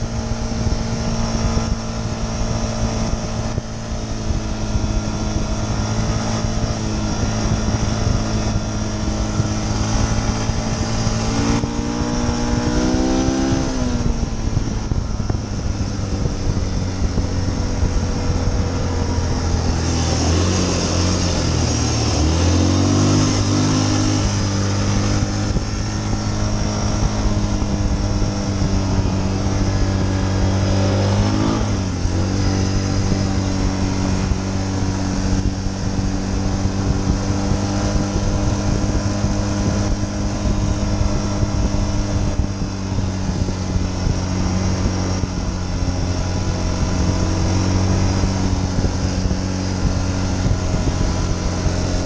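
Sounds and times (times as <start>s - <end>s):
atv engine running: 0.0s - 52.0s.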